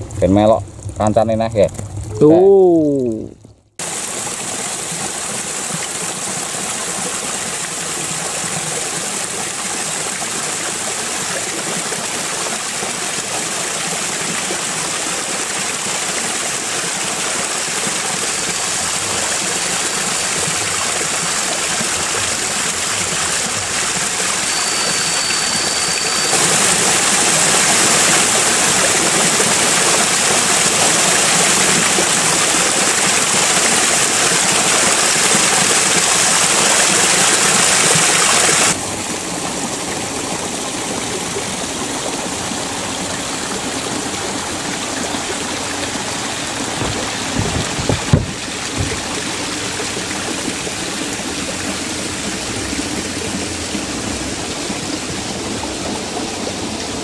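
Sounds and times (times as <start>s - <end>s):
water pouring over weir: 0.0s - 57.0s
faint high whistling tone: 24.2s - 27.0s.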